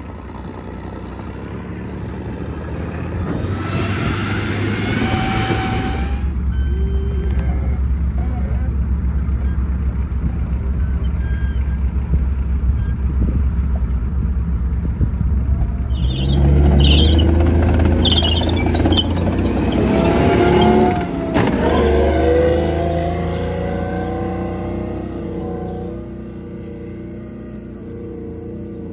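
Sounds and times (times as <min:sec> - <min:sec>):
off-road vehicle engine droning: 0:00.0 - 0:28.9
short high squeals: 0:04.0 - 0:13.3, 0:15.5 - 0:17.4, 0:18.0 - 0:21.0.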